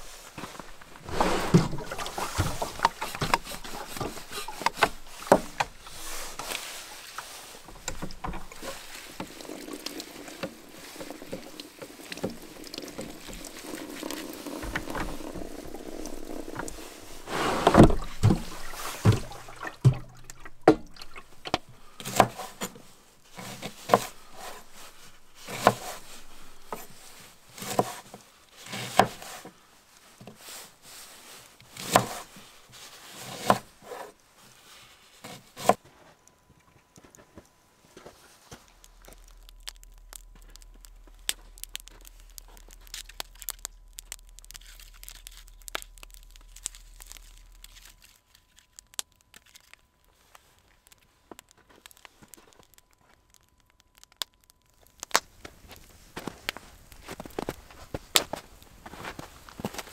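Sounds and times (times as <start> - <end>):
water running into a container: 0.5 - 22.6.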